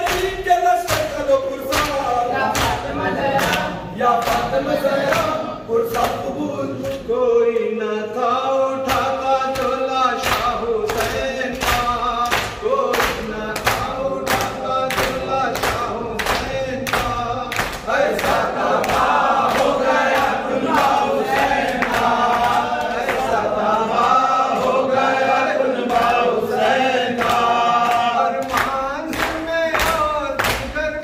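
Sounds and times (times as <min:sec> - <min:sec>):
man chanting into microphone: 0:00.0 - 0:18.6, 0:27.2 - 0:31.0
men chanting in chorus: 0:00.0 - 0:31.0.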